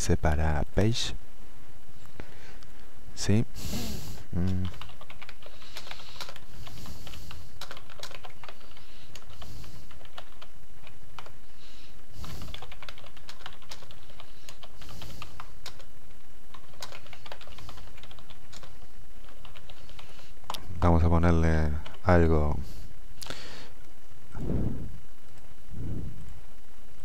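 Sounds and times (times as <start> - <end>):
typing on keyboard: 4.5 - 11.4, 12.3 - 15.9, 16.5 - 20.6.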